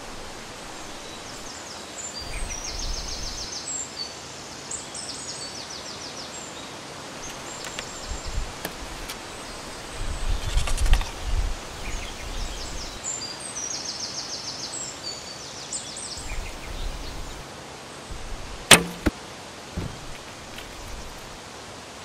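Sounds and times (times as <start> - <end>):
bowstring snapping: 18.1 - 19.2
arrow hitting target click: 18.7 - 19.2.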